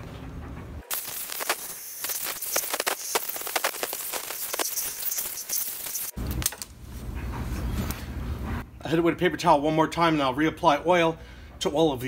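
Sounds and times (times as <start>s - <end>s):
compressed air blow gun hissing: 0.9s - 6.2s.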